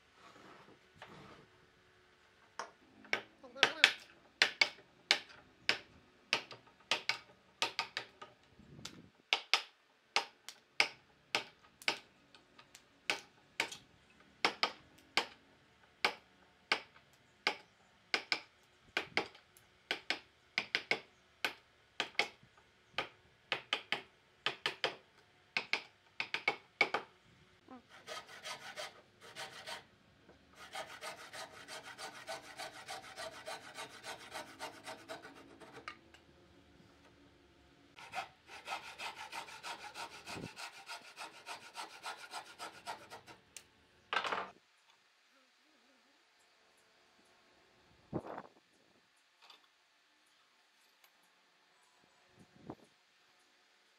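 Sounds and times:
hand tool scraping wood: 27.9 - 29.8, 30.6 - 36.0, 38.0 - 43.4.

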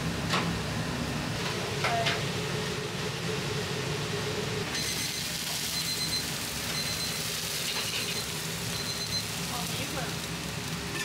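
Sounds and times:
kitchen hum: 0.0 - 11.0
dumplings sizzling in pan: 4.7 - 11.0.

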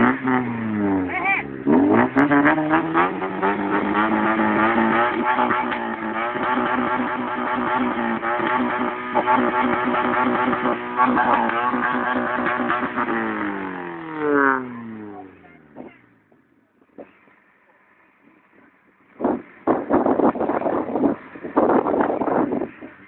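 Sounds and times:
car engine revving at exhaust: 0.0 - 17.6.

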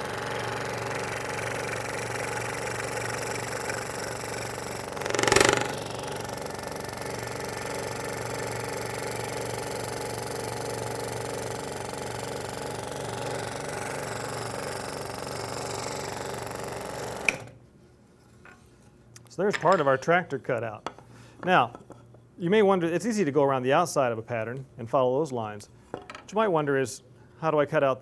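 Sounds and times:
scroll saw cutting wood: 2.8 - 6.4.

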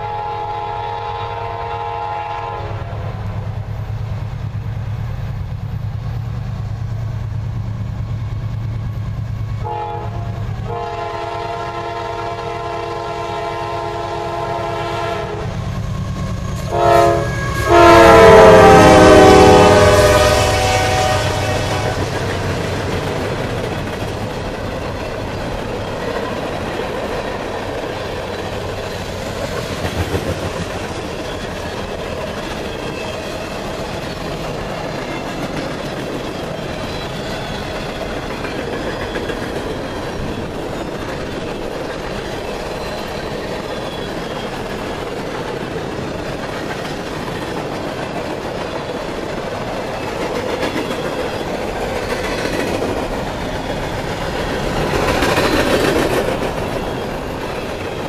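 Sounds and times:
steel wheels roaring on rail: 0.0 - 58.0
wheels clacking over rail joints: 21.4 - 58.0.

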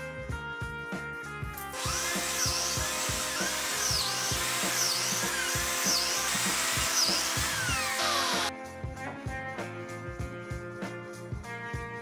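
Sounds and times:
background music with beat: 0.0 - 12.0
biscuit jointer running: 1.8 - 8.5.

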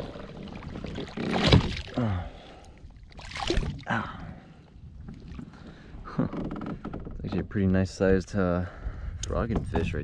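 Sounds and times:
water splashing: 0.0 - 4.2.

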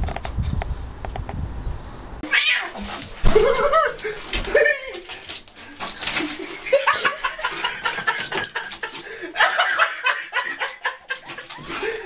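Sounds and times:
people laughing: 3.2 - 5.2, 5.9 - 12.0.

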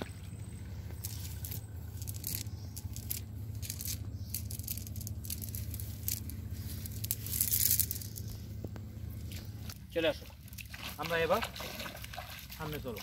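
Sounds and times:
steady low hum: 0.0 - 13.0
small clicks and rattles: 0.9 - 8.9
net crackling and rustling: 1.0 - 8.4.

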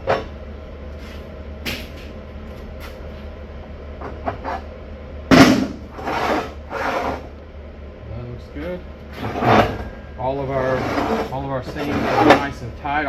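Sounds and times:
low steady hum: 0.0 - 13.0
metal clattering scrapes: 5.9 - 7.3, 9.1 - 12.6.

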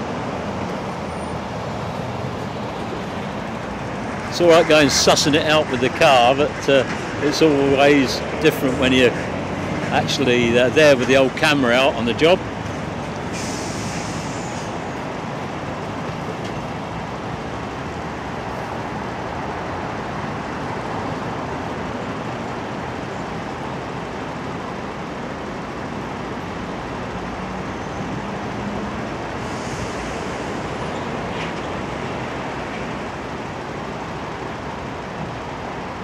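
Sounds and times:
road traffic idling: 0.0 - 36.0
short hiss: 13.3 - 14.7.

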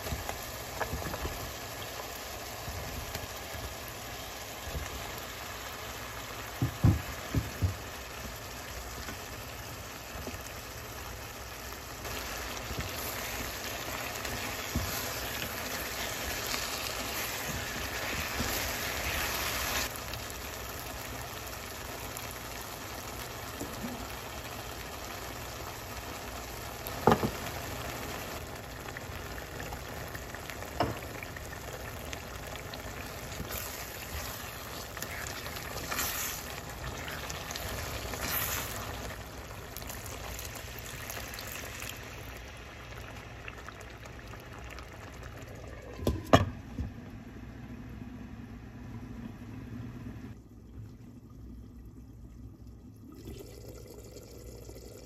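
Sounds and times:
food sizzling and bubbling in a pan: 0.0 - 55.0
knocks on a pan: 6.6 - 7.8, 27.0 - 27.4.

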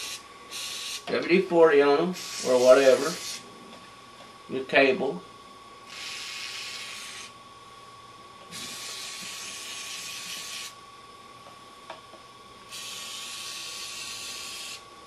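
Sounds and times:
aerosol spray hissing: 0.0 - 1.0, 2.2 - 3.4.

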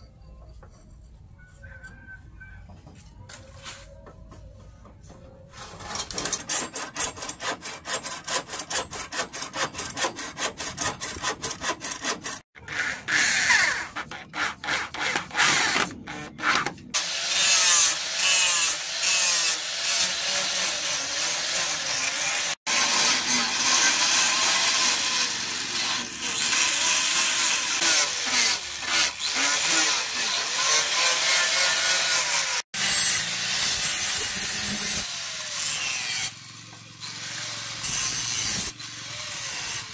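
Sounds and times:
bow saw cutting wood: 5.5 - 39.9
angle grinder grinding steel: 5.6 - 39.9.

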